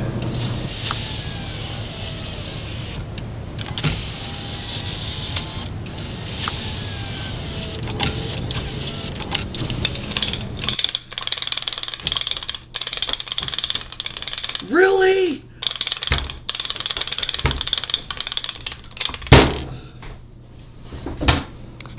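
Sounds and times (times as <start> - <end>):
electric window motor humming: 0.0 - 10.7
small metal parts clattering: 7.8 - 14.7, 15.6 - 19.4.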